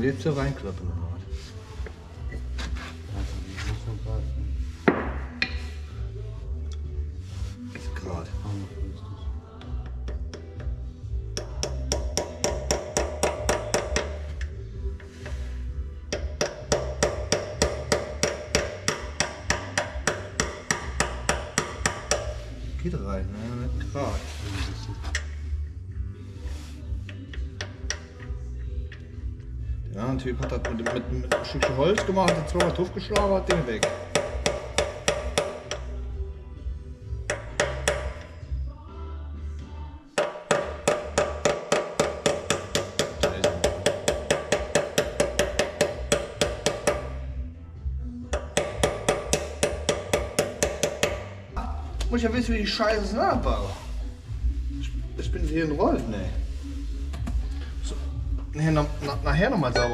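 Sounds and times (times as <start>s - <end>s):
hammer striking metal: 11.4s - 14.2s, 16.1s - 22.4s, 30.4s - 35.9s, 40.2s - 47.2s, 48.3s - 51.3s.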